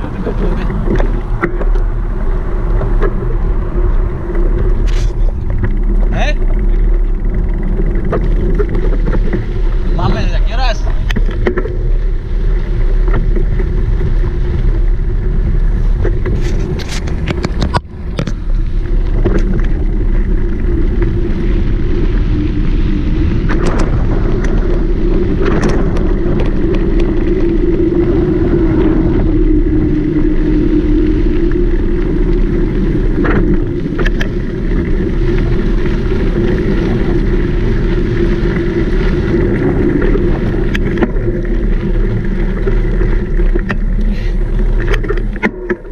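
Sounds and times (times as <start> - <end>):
bike clicks and knocks: 0.0 - 3.4, 4.2 - 9.5, 10.9 - 14.6, 15.9 - 21.2, 23.4 - 27.5, 32.2 - 36.0
wind rushing: 0.0 - 44.8
rolling tyre noise: 0.0 - 45.9.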